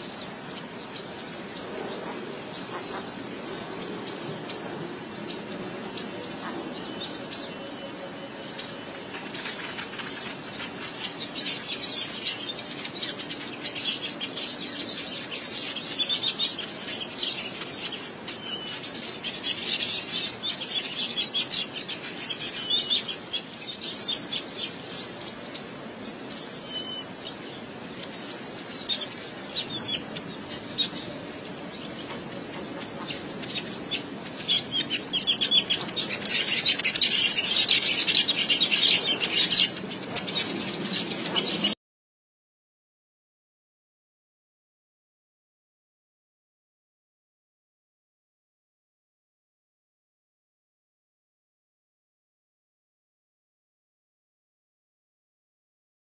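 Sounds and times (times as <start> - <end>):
birds chattering: 0.0 - 41.8.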